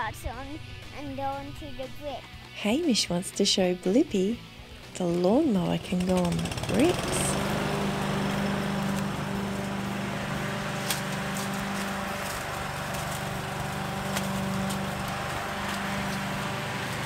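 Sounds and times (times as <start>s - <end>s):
lawn mower running on paving: 4.7s - 17.0s
grit ticking under mower: 5.0s - 17.0s.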